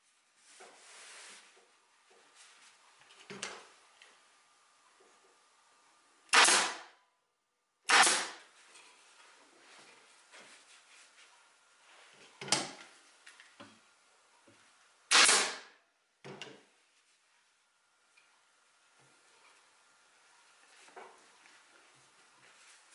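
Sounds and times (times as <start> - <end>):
fabric rubbing and rustling: 0.0 - 2.8, 20.4 - 22.9
staple gun shots: 6.3 - 6.9, 7.9 - 8.5, 15.1 - 15.7.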